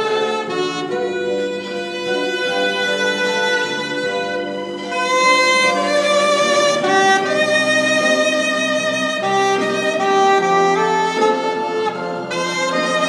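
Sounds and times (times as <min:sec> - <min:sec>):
solo saxophone melody: 0:00.0 - 0:13.0.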